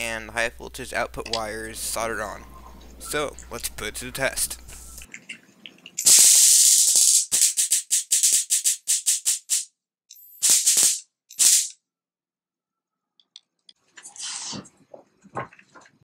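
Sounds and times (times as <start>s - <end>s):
electric sparks crackling: 6.0s - 9.7s, 10.4s - 11.8s.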